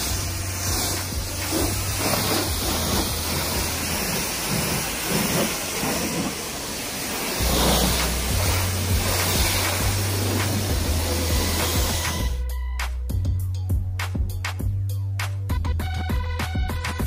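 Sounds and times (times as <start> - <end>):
pressure washer spraying: 0.0 - 12.4.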